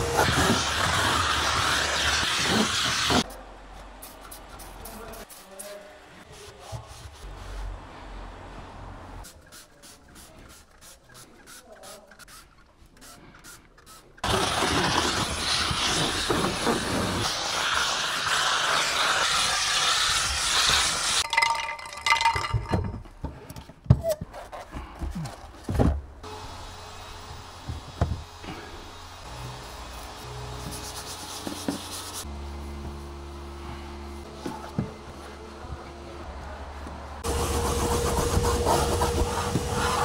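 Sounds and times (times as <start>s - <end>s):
steam cleaner hissing: 0.0s - 3.3s, 13.4s - 21.2s, 37.2s - 40.0s.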